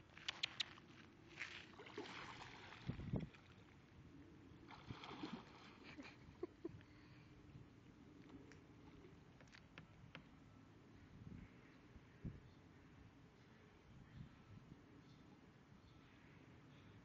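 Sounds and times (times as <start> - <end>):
dog splashing in water: 1.4 - 3.0.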